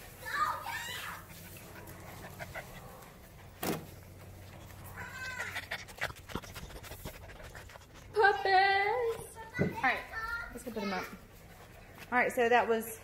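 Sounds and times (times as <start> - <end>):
puppy whining: 4.6 - 6.6.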